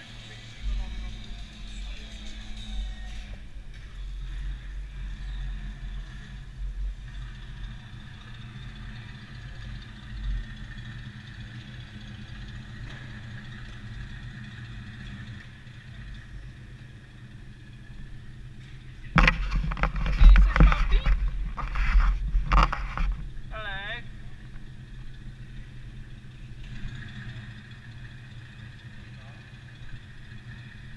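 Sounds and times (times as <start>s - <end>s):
electric go-kart motor hum: 0.0s - 30.9s.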